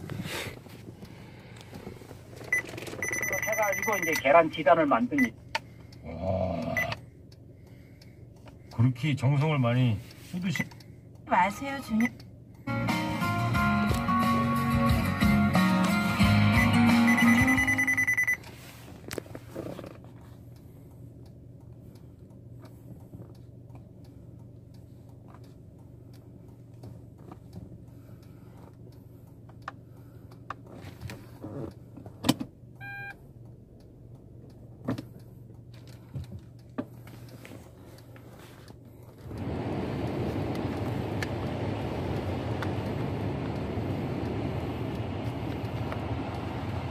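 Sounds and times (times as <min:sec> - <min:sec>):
low car interior hum: 0:00.0 - 0:46.9
short electronic beep: 0:02.5 - 0:04.3, 0:16.6 - 0:18.4, 0:32.8 - 0:33.2
guitar music from car radio: 0:11.3 - 0:19.0
climate control fan hiss: 0:39.2 - 0:46.9.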